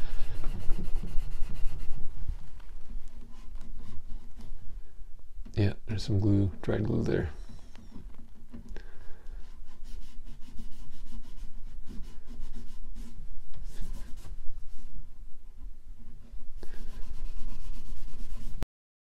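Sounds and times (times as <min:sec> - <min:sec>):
rag rubbing on wood: 0:00.0 - 0:02.3, 0:09.4 - 0:14.4, 0:16.6 - 0:18.6.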